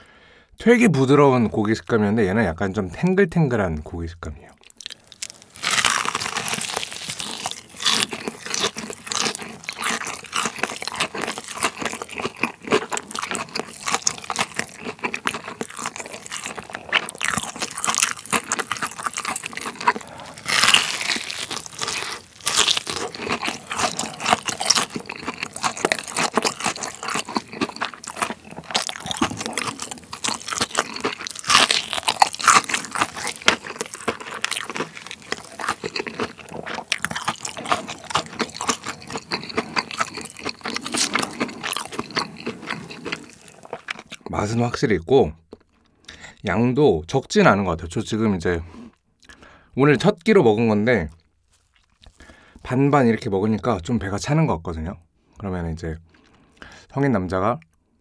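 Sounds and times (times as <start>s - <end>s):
crunching bites and chewing: 4.6s - 44.4s, 51.0s - 52.7s.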